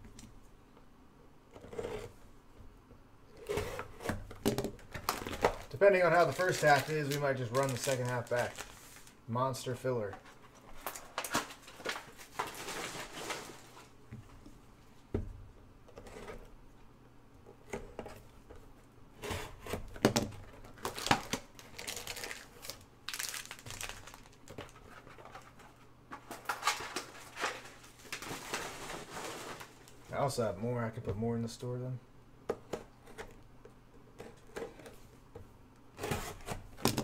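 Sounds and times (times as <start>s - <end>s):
plastic wrap crinkling and tearing: 4.8s - 9.2s, 10.7s - 13.9s, 20.6s - 24.8s, 26.3s - 30.0s.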